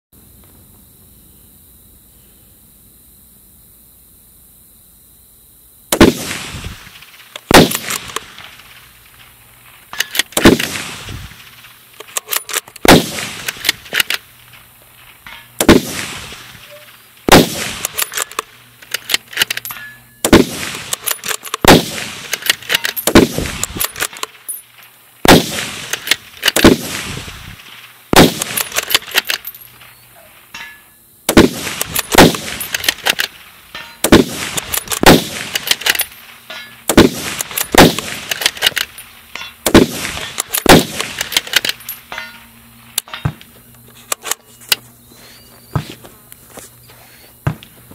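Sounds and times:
rifle shots echoing: 0:05.9 - 0:24.6, 0:25.2 - 0:29.9, 0:31.3 - 0:43.4.

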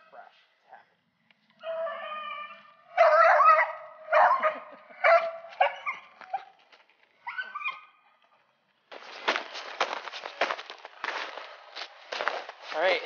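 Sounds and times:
hound baying: 0:01.6 - 0:06.6.

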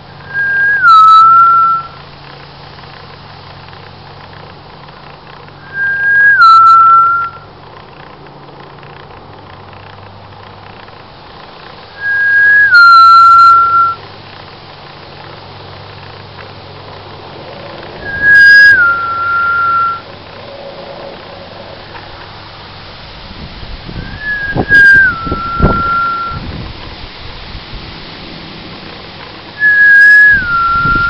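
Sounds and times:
person whistling loudly: 0:00.2 - 0:02.0, 0:05.6 - 0:07.5, 0:12.0 - 0:14.0, 0:18.0 - 0:20.1, 0:24.0 - 0:26.4, 0:29.6 - 0:31.0.

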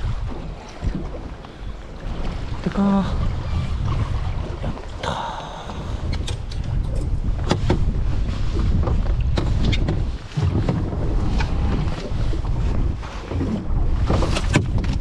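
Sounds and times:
wind buffeting microphone: 0:00.0 - 0:15.0
sharp knocks and clicks: 0:08.9 - 0:10.8.

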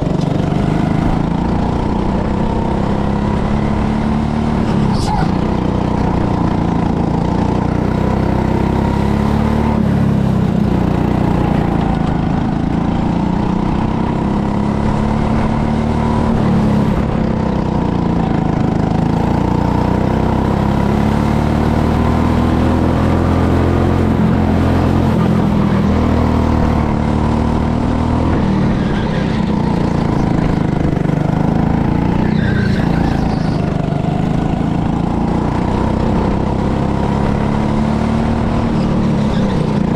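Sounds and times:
go-kart engine revving: 0:00.0 - 0:39.9.

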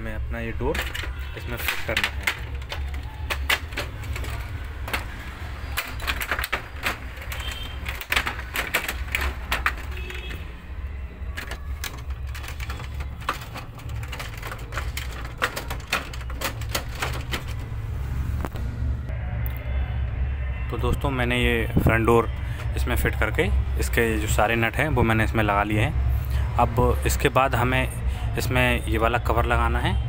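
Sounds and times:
plastic and metal parts clicking: 0:00.5 - 0:10.6, 0:11.2 - 0:17.8.

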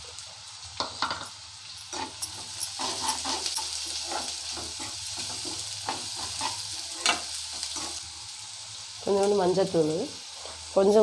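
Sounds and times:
onions sizzling in oil: 0:00.0 - 0:11.0
spatula scraping pan: 0:01.9 - 0:08.0.

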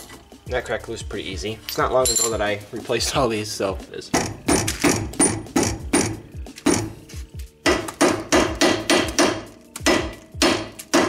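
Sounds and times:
hammer striking metal: 0:04.1 - 0:07.0, 0:07.6 - 0:11.0.

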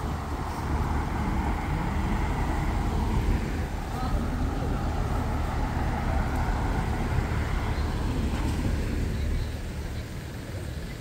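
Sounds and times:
cars driving past: 0:00.0 - 0:11.0.

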